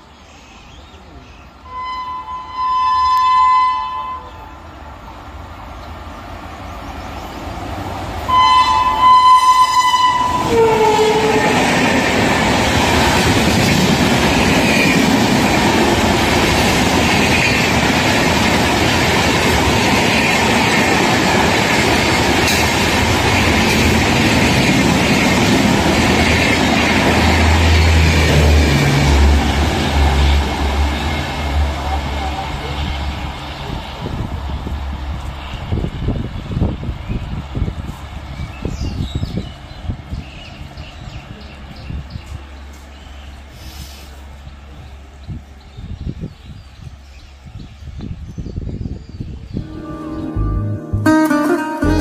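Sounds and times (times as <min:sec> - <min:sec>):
train horn: 0:01.6 - 0:04.6, 0:08.3 - 0:11.8, 0:49.6 - 0:52.0
train coaches rushing and clattering: 0:02.6 - 0:49.8.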